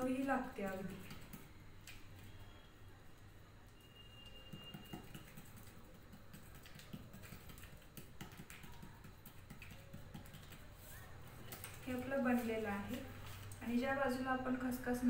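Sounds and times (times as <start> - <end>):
fingertips tapping dough: 0.3 - 2.0, 4.2 - 12.2.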